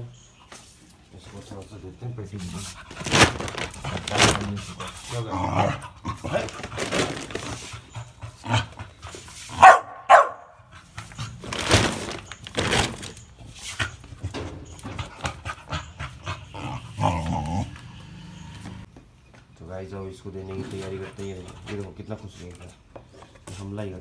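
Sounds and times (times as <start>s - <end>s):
plastic bag crinkling: 2.9s - 4.6s, 6.3s - 7.7s, 11.4s - 13.4s
dog yipping: 9.6s - 10.6s.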